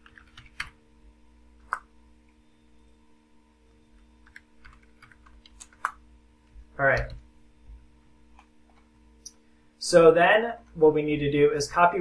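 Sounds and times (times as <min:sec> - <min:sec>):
computer keyboard keystrokes: 0:00.0 - 0:00.8, 0:04.2 - 0:06.0
faint steady hum: 0:00.0 - 0:12.0.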